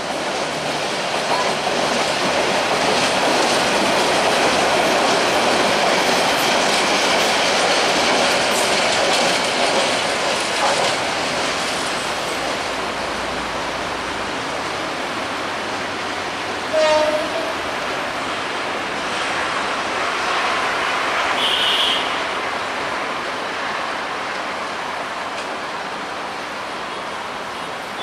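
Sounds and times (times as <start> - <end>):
train wheels clattering over rail joints: 0.0 - 12.8
train horn toot: 16.7 - 17.6, 21.4 - 22.2.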